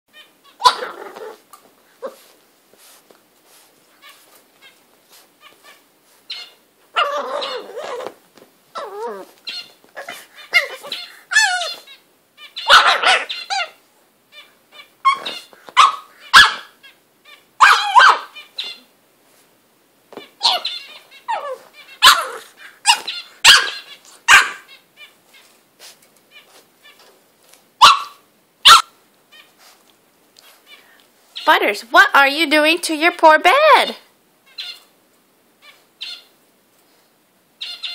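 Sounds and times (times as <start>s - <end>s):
puppy barking and growling: 0.6s - 2.3s, 6.9s - 9.4s, 10.0s - 11.9s, 12.6s - 13.8s, 15.0s - 16.8s, 17.6s - 18.4s, 20.4s - 24.7s, 27.8s - 29.0s.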